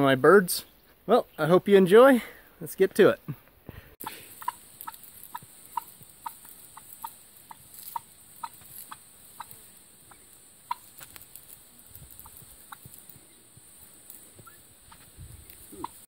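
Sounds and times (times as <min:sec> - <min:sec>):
turkeys calling: 0:04.0 - 0:16.0.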